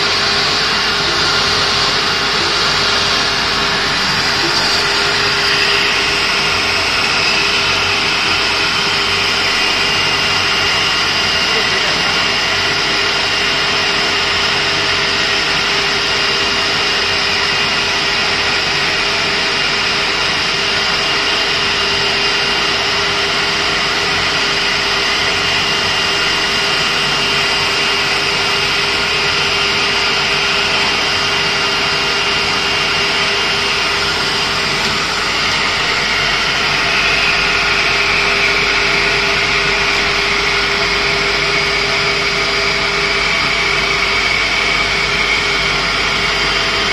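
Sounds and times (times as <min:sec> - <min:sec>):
high machine tones: 0:00.0 - 0:14.0
cutting machine hum and whine: 0:00.0 - 0:46.9.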